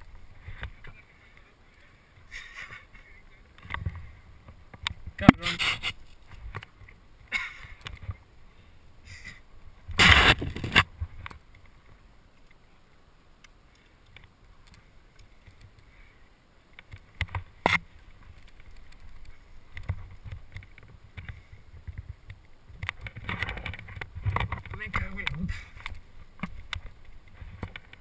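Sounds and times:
soft rustling against rock: 0.0 - 28.0
loud brushing scrape: 5.4 - 6.0
climbing gear clicks: 16.7 - 28.0.

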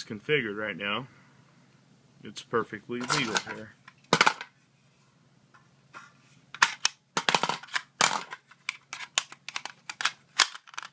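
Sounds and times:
metal magazine clicking into rifle: 8.7 - 10.9.

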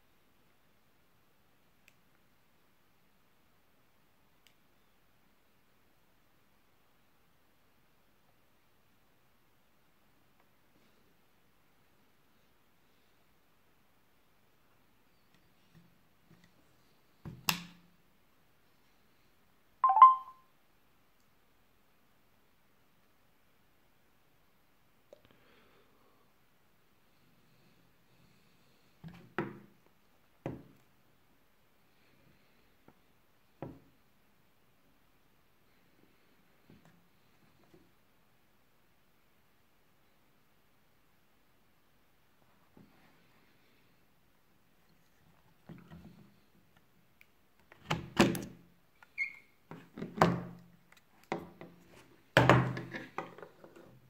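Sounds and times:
short squeak: 49.1 - 49.6.

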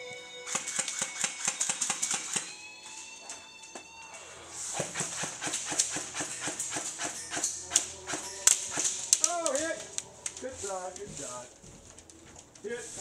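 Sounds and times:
airsoft guns firing: 0.5 - 2.5, 4.8 - 9.6.

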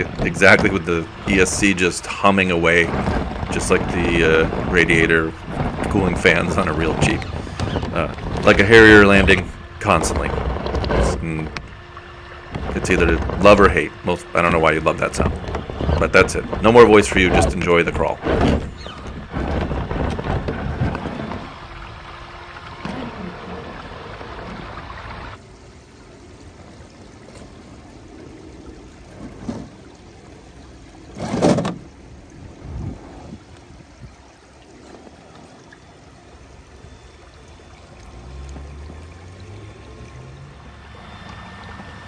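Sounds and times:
rc car motor and fan humming: 0.0 - 18.1
creek water running: 0.0 - 42.0.

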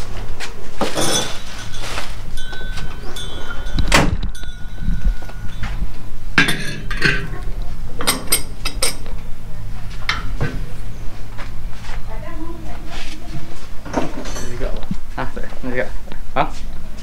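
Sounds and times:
steady low hum: 0.0 - 17.0
metal parts clinking and knocking: 0.8 - 9.2.

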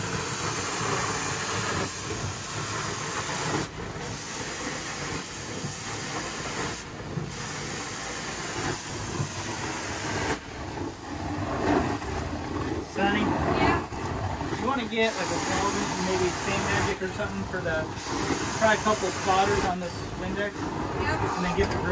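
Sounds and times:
cleaning wand hissing spray and vacuum: 0.0 - 10.5, 14.6 - 21.9.

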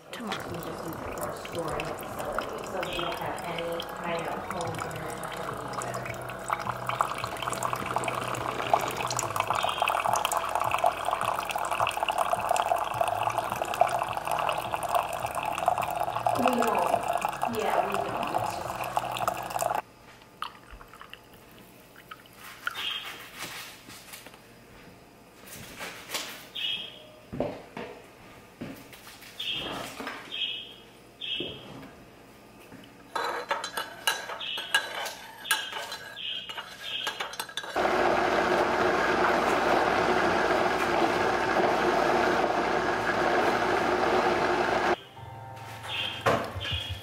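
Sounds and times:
coffee machine humming: 0.0 - 19.8, 37.8 - 45.0
blender running: 0.2 - 19.8, 37.8 - 45.0
coffee splashing into mug: 0.2 - 19.8
milk trickling into mug: 0.2 - 19.8.

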